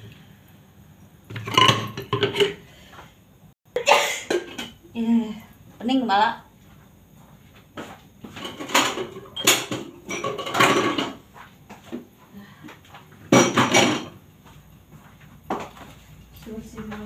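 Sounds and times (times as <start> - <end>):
dishes clattering on a counter: 1.3 - 2.6, 3.8 - 4.8, 8.2 - 12.1, 12.7 - 14.2.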